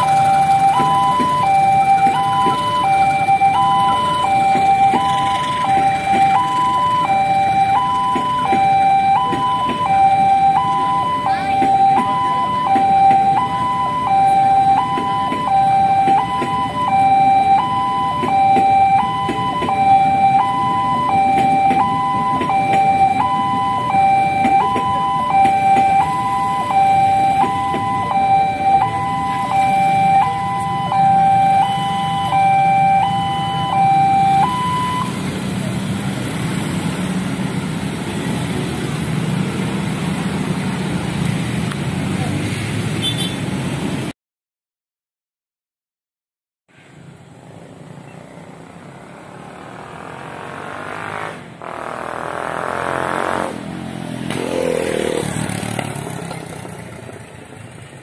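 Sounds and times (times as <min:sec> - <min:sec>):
two-tone crossing alarm: 0:00.0 - 0:35.4
motorcycle and road traffic: 0:00.0 - 0:44.2, 0:46.7 - 0:58.0.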